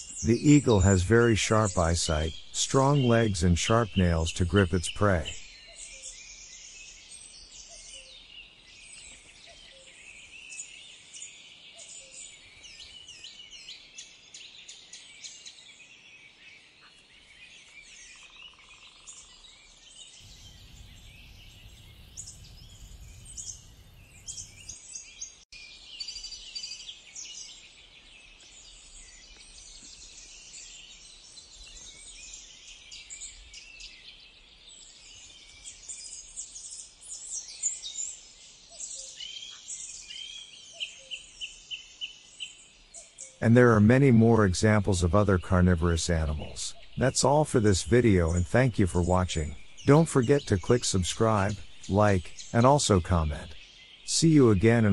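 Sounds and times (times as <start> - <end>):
small birds chirping: 0.0 - 54.9
low wind rumble: 20.3 - 24.7.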